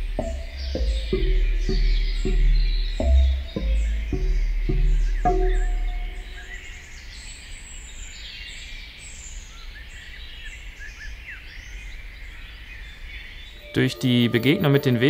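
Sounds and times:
low background rumble: 0:00.0 - 0:06.8
birds chirping and singing: 0:00.0 - 0:15.0.

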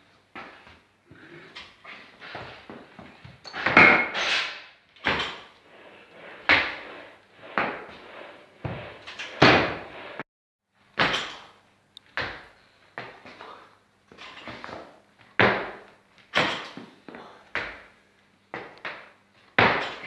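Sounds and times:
feet stamping on platform: 0:12.1 - 0:13.5.

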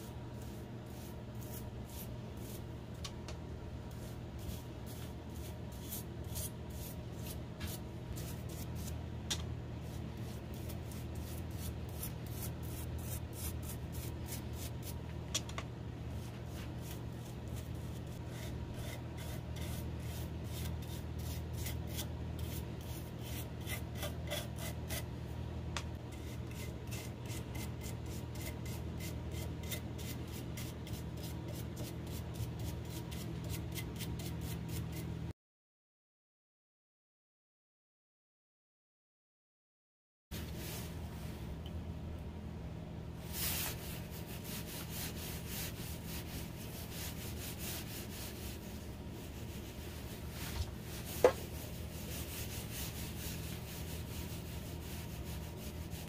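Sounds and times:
steady low hum: 0:00.0 - 0:35.3, 0:40.4 - 0:56.0
brush bristles rubbing on wood: 0:43.3 - 0:56.0.

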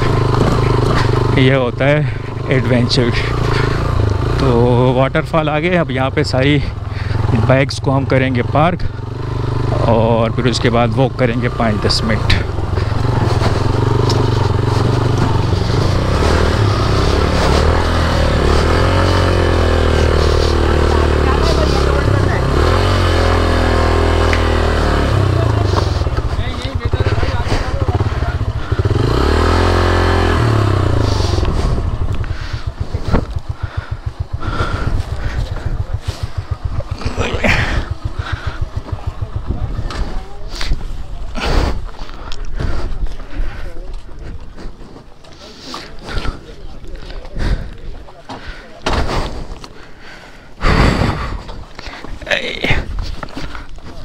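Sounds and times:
motorcycle engine rumbling: 0:00.0 - 0:54.0.

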